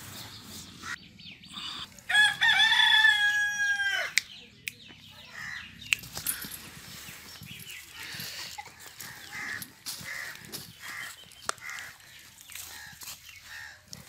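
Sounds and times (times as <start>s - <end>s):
rooster crowing: 2.1s - 4.2s.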